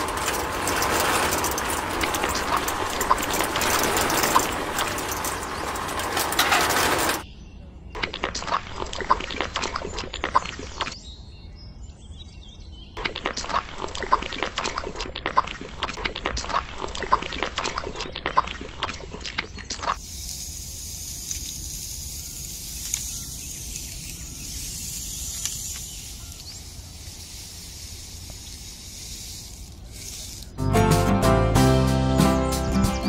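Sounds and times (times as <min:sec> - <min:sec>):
birds chirping: 0:00.0 - 0:08.2, 0:22.0 - 0:27.8.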